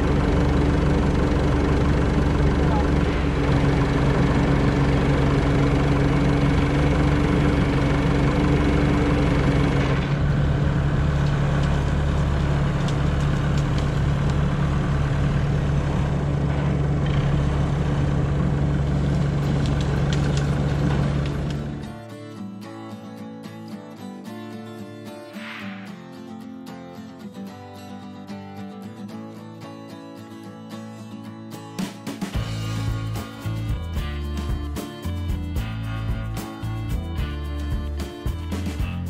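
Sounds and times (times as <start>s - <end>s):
diesel engines idling: 0.0s - 21.9s.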